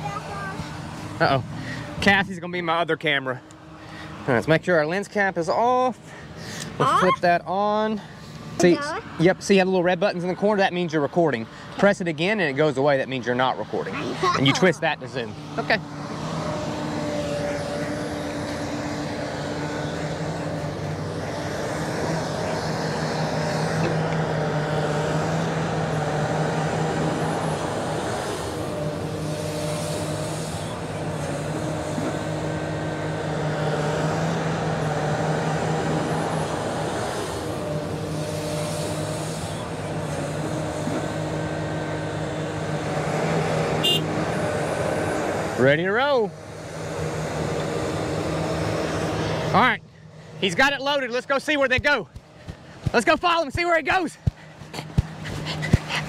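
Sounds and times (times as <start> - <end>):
excavator diesel engine working: 10.4 - 56.0.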